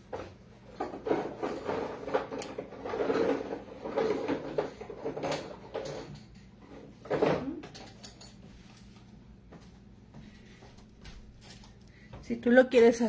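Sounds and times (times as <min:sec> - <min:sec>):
objects knocking and clattering: 0:00.0 - 0:08.8.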